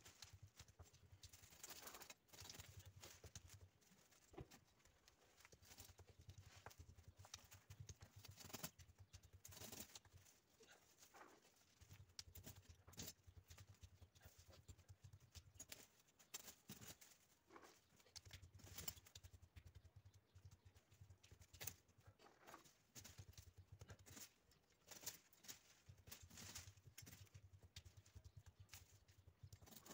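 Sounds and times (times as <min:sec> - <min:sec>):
dry twigs and leaves rustling: 0:00.0 - 0:29.9.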